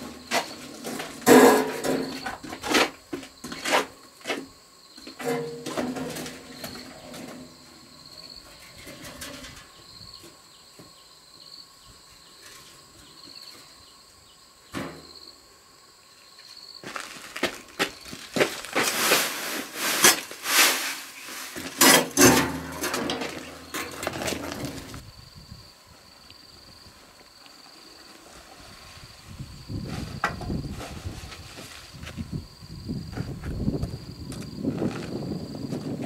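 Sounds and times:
sand pouring and scraping: 0:16.9 - 0:25.0, 0:28.0 - 0:32.1.

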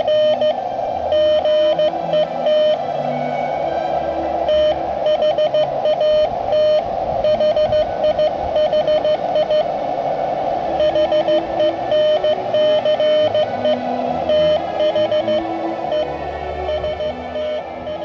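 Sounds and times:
morse code tone: 0:00.0 - 0:02.8, 0:04.4 - 0:09.7, 0:10.8 - 0:18.0
receiver hiss: 0:00.0 - 0:02.8, 0:03.6 - 0:18.0.

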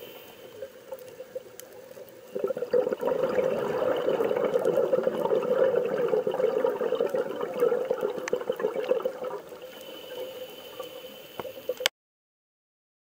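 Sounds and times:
rushing water with crackles: 0:00.0 - 0:10.0.

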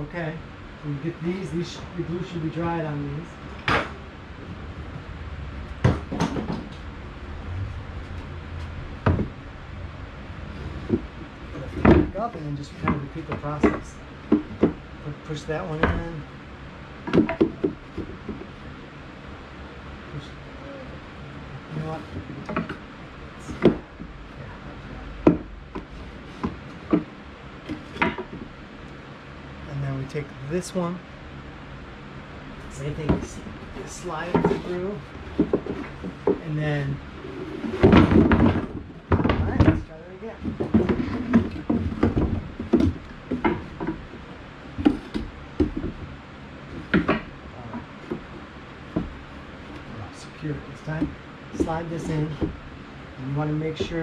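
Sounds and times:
wooden boards knocking: 0:05.8 - 0:06.8, 0:08.0 - 0:09.4, 0:10.6 - 0:14.9, 0:15.7 - 0:16.2, 0:17.0 - 0:18.6, 0:23.4 - 0:24.1, 0:25.1 - 0:28.6, 0:32.8 - 0:49.9, 0:50.9 - 0:52.7.

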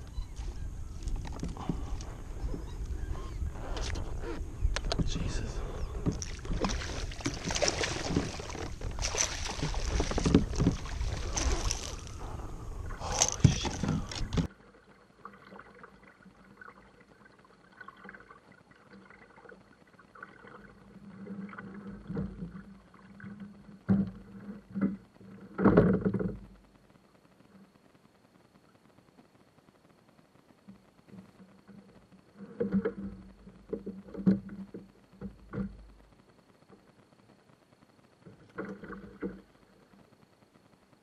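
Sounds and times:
kayak paddle strokes: 0:00.0 - 0:26.5
water splashing beside a kayak: 0:00.0 - 0:26.8, 0:38.0 - 0:41.0.

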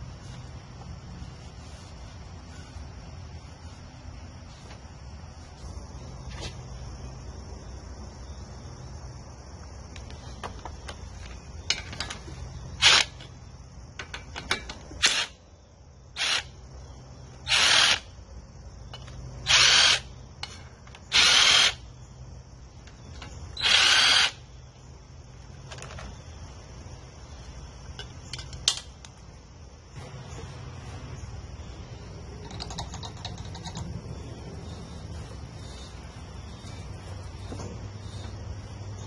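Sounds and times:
cordless drill running in bursts: 0:16.2 - 0:16.5, 0:17.5 - 0:18.0, 0:19.5 - 0:20.1, 0:21.1 - 0:21.8, 0:23.6 - 0:24.4.

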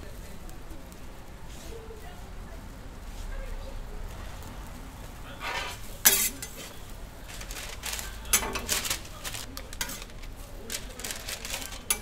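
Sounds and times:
metal spatula clinking on griddle: 0:05.4 - 0:06.8, 0:08.2 - 0:08.8, 0:09.7 - 0:10.3.

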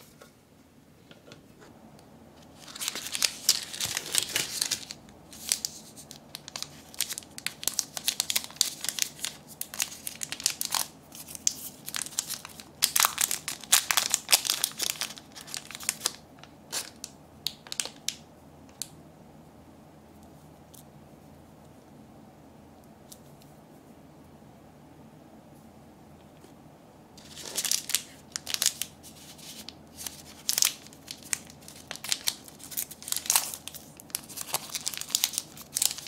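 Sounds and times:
candy wrappers crinkling: 0:02.4 - 0:18.9, 0:27.2 - 0:36.0.

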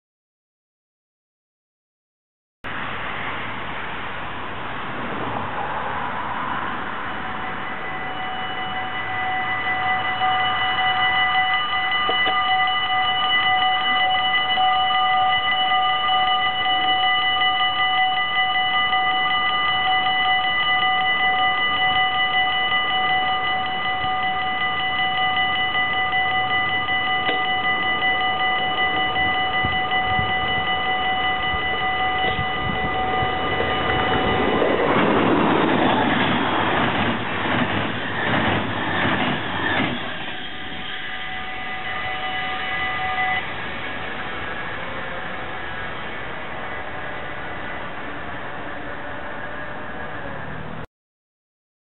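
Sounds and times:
train passing: 0:02.7 - 0:50.8
level crossing bells ringing: 0:07.0 - 0:47.5.

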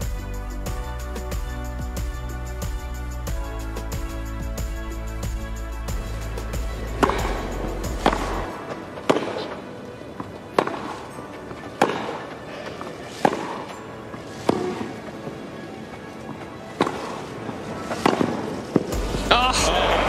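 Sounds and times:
music: 0:00.0 - 0:20.0
tennis rackets hitting ball: 0:09.1 - 0:09.6, 0:10.2 - 0:11.1, 0:11.7 - 0:12.3, 0:13.1 - 0:13.7, 0:14.4 - 0:14.9, 0:16.8 - 0:17.2, 0:17.9 - 0:18.9.

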